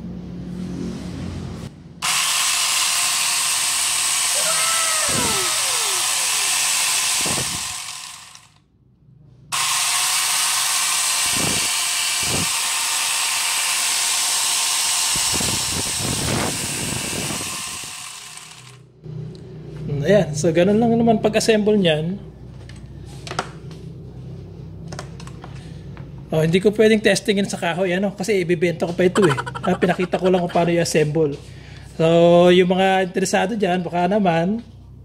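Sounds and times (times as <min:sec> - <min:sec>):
angle grinder chain spinning: 0:02.0 - 0:08.6, 0:09.5 - 0:18.8.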